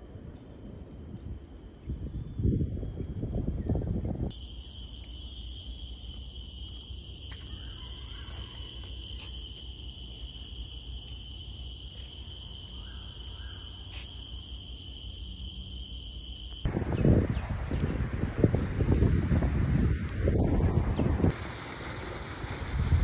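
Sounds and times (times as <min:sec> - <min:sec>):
high-pitched insect chorus: 0:01.2 - 0:16.8.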